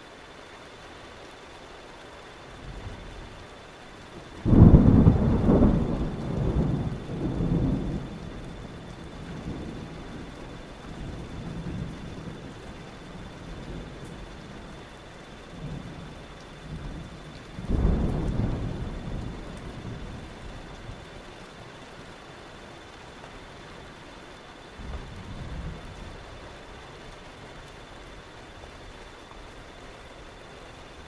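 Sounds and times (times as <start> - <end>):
rain hissing: 0.0 - 31.0
thunder rumbling: 4.4 - 21.2, 24.8 - 26.6.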